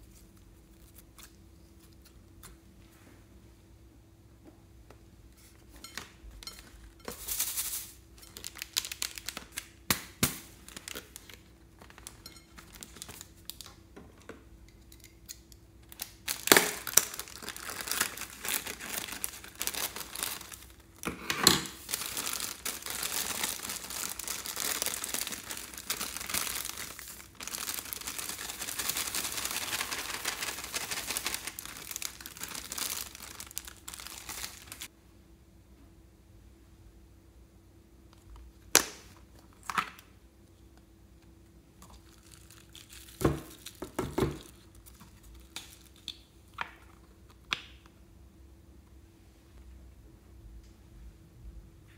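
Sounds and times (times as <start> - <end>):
foil balloon crinkling: 15.9 - 20.8, 21.7 - 34.9, 41.9 - 46.0.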